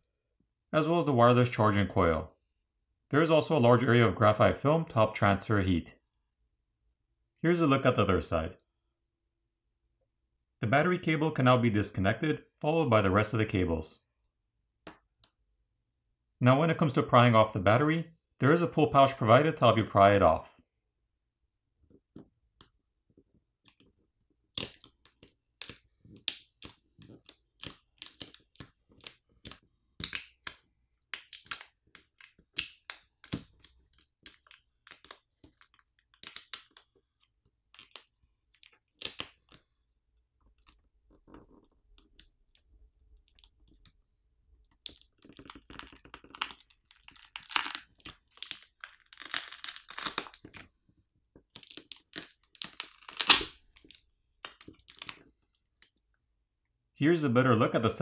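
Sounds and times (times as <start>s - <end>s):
plastic film crinkling: 31.2s - 39.6s, 44.9s - 50.7s
adhesive crackling: 44.7s - 50.6s, 51.5s - 55.3s.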